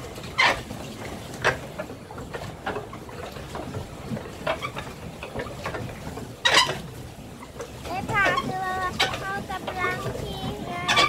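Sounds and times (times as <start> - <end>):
low rumble of wind and water: 0.0 - 11.0
voices: 7.8 - 11.0.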